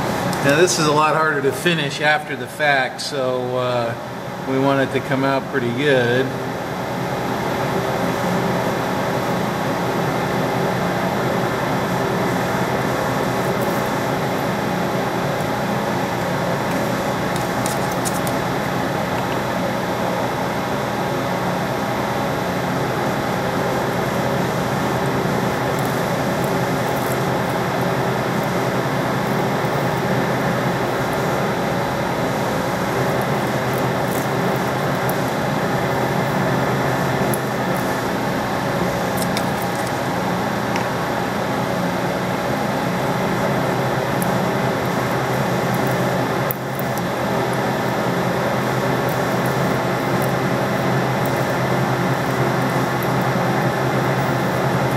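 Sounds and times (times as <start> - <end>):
metal lathe cutting steel: 24.3 - 40.1, 42.8 - 54.9.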